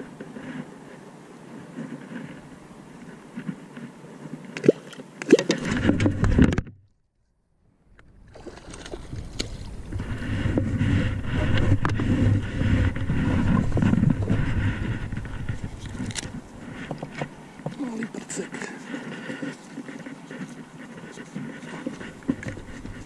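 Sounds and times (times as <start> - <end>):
water splashing around boat: 4.2 - 6.4, 8.1 - 23.0.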